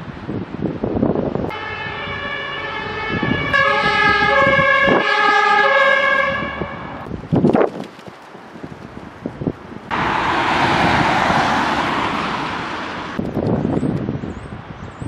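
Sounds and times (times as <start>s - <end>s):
wind buffeting microphone: 0.0s - 15.0s
fire engine two-tone siren: 1.5s - 7.0s.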